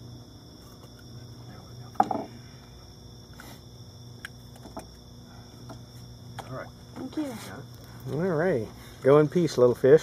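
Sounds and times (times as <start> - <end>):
night insects trilling: 0.0 - 10.0.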